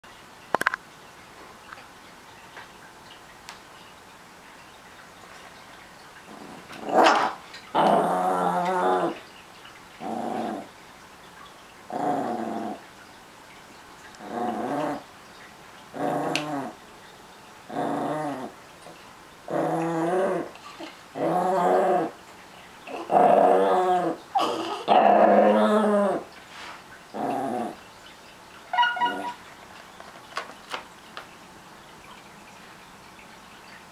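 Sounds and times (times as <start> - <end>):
small dog growling: 6.3 - 9.2, 10.0 - 10.7, 11.9 - 12.8, 14.2 - 15.0, 15.9 - 16.8, 17.7 - 18.6, 19.5 - 22.2, 22.9 - 26.3, 27.1 - 27.8.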